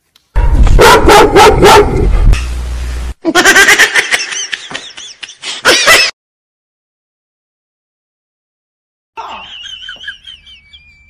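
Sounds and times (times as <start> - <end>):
heavy low rumble: 0.4 - 0.8, 1.8 - 3.1
high-pitched laughter: 3.2 - 6.1, 9.2 - 11.0.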